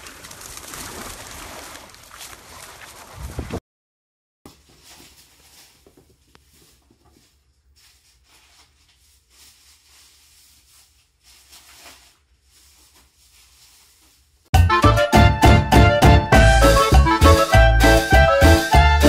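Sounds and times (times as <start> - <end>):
kitten scampering on carpet: 4.5 - 14.3.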